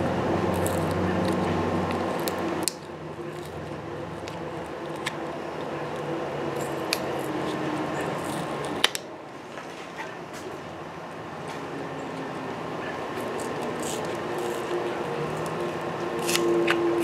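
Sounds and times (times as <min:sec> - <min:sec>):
screwdriver scraping plastic: 0:13.2 - 0:15.6.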